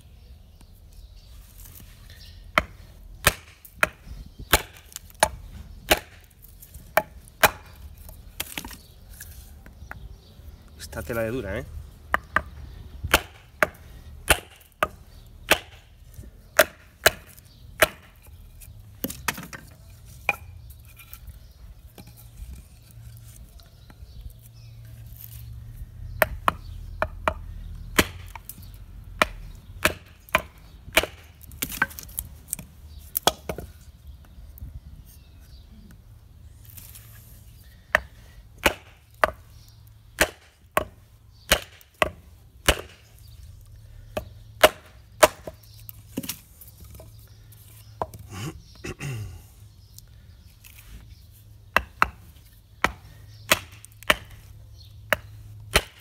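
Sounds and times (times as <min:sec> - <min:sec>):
baton knocking on knife splitting wood: 0:02.5 - 0:07.8, 0:12.1 - 0:15.9, 0:16.5 - 0:18.3, 0:26.2 - 0:27.4, 0:28.0 - 0:28.6, 0:29.2 - 0:32.2, 0:37.9 - 0:39.5, 0:40.1 - 0:43.1, 0:44.2 - 0:46.4, 0:51.7 - 0:54.4, 0:55.1 - 0:56.0.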